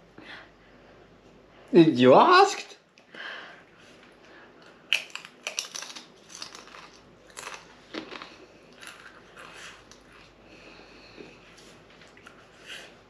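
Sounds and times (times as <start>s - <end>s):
chip crunching: 4.9s - 10.4s.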